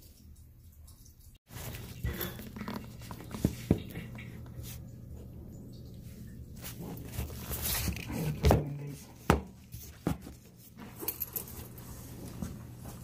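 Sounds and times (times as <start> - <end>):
cloth rustling: 1.5 - 4.9, 6.5 - 13.0.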